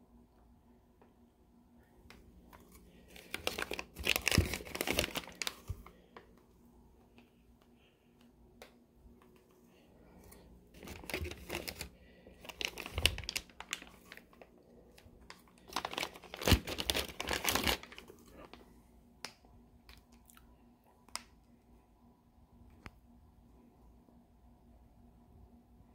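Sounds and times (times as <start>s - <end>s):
plastic bag crinkling: 2.6s - 6.2s, 10.2s - 18.6s.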